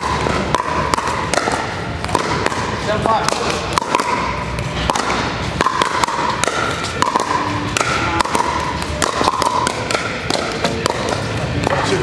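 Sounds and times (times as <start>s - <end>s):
ball bouncing on hard court: 0.0s - 12.0s
paddles hitting plastic ball: 0.0s - 12.0s.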